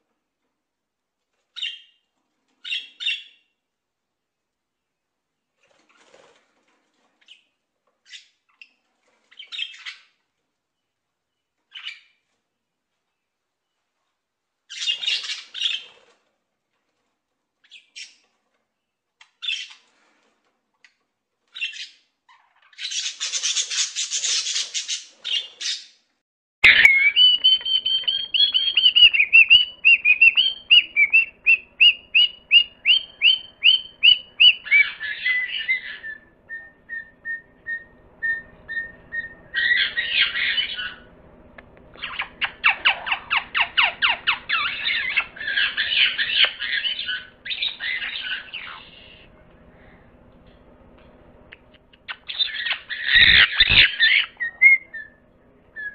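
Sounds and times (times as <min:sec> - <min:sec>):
shrill bird chirps: 0:01.6 - 0:02.0, 0:02.6 - 0:03.6, 0:09.3 - 0:10.1, 0:11.7 - 0:12.2, 0:14.7 - 0:16.1, 0:21.6 - 0:26.0, 0:26.6 - 0:41.1, 0:41.9 - 0:49.2, 0:51.6 - 0:55.2
parrots squawking: 0:14.7 - 0:15.9, 0:21.6 - 0:25.9, 0:26.7 - 0:41.1, 0:42.0 - 0:49.2, 0:52.1 - 0:55.2
bird chattering: 0:26.7 - 0:36.2, 0:42.0 - 0:49.2, 0:51.6 - 0:55.1.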